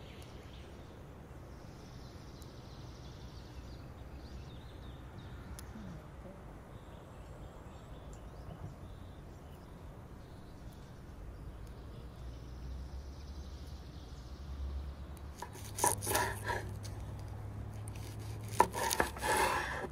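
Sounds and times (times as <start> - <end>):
faint bird chirps: 0.0 - 15.6.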